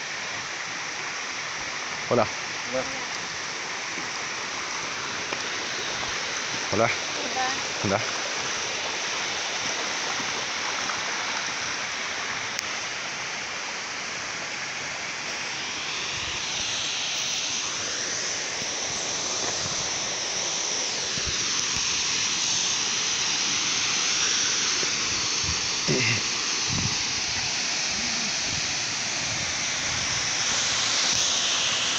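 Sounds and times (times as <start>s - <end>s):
waterfall rushing: 0.0s - 31.9s.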